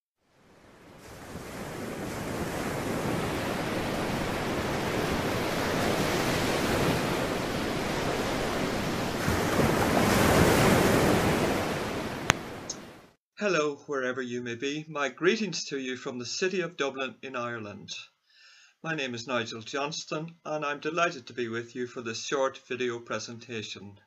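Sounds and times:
wind: 0.2 - 13.2
sea surf washing on shore: 0.3 - 13.1.

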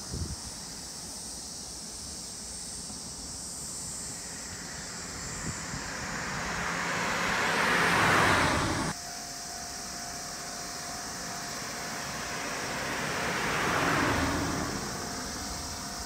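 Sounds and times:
road vehicle passing: 3.6 - 16.0.

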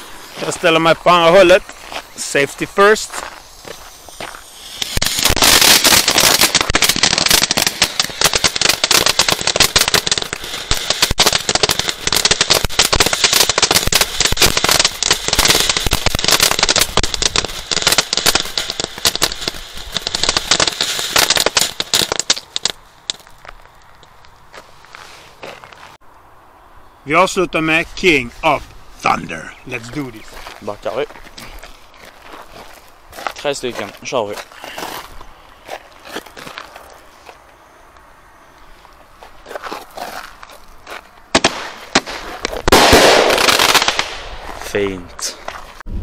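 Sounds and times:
firework sparks hissing: 0.0 - 23.3, 41.3 - 44.6
firework fountain crackling: 0.0 - 23.9, 41.3 - 45.4.

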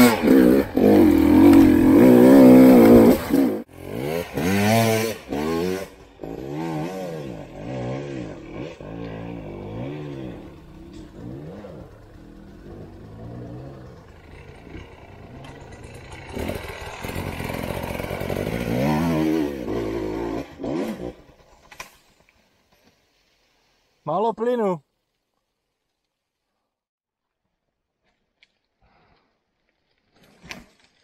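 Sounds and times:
motorcycle engine revving: 0.0 - 21.7.

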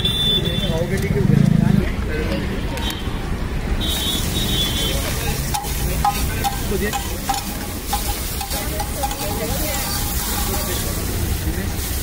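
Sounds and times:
butter sizzling on a griddle: 4.2 - 12.0
metal spatula scraping griddle: 5.6 - 11.1.

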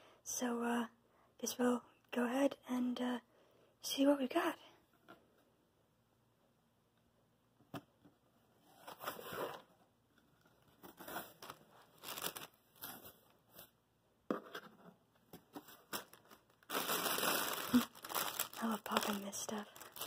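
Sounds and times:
plastic packing rustling: 10.5 - 13.7, 15.5 - 20.0.

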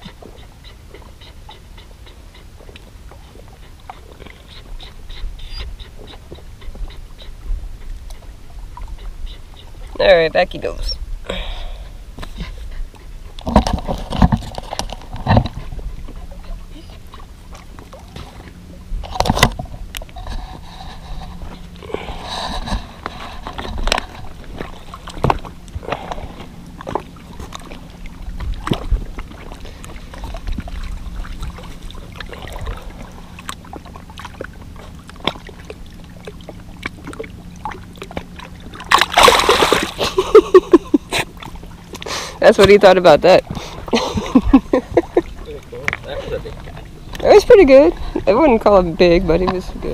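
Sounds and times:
low wind rumble on microphone: 0.0 - 42.5, 43.2 - 49.9.

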